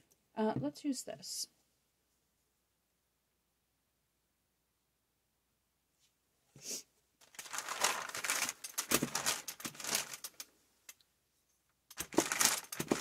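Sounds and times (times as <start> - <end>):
paper crinkling under roller: 7.2 - 10.5, 11.9 - 13.0
paper rustle: 7.2 - 10.5, 11.9 - 13.0.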